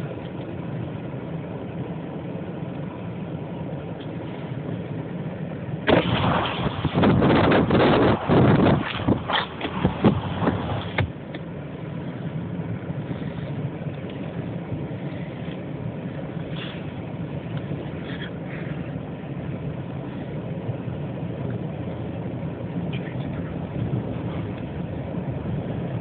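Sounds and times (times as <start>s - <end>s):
car engine running: 0.0s - 26.0s
road noise: 0.0s - 26.0s.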